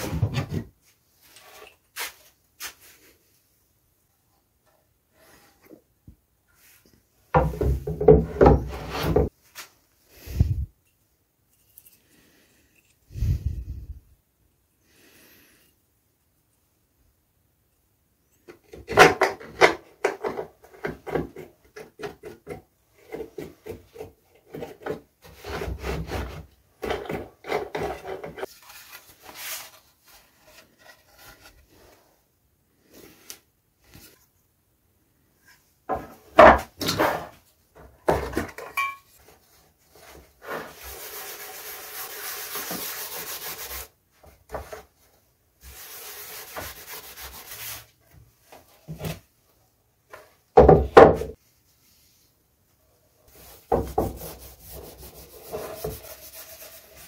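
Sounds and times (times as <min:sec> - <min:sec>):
wood and tools knocking and clattering: 0:00.0 - 0:00.8, 0:07.3 - 0:09.3, 0:18.4 - 0:28.5, 0:35.9 - 0:39.4, 0:50.1 - 0:51.4
rag rubbing wax on wood: 0:40.4 - 0:43.9, 0:53.4 - 0:57.0.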